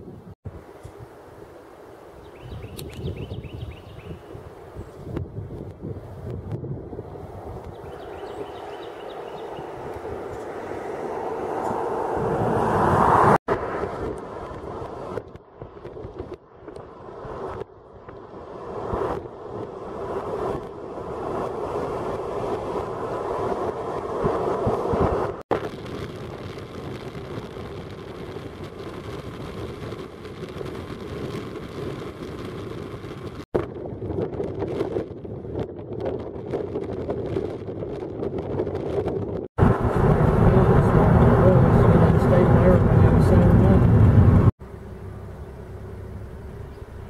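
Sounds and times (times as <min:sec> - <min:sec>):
gusty wind on microphone: 0:00.0 - 0:47.0.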